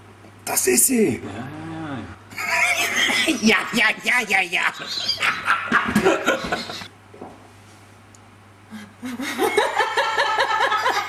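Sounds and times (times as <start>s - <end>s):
laughter: 4.6s - 6.9s, 9.0s - 11.0s.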